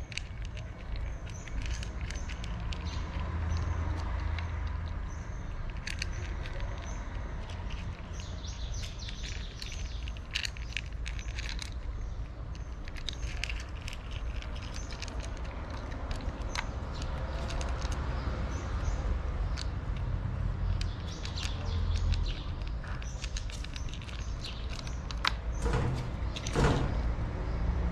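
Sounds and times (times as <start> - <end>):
cats crunching dry kibble: 0.0 - 25.5.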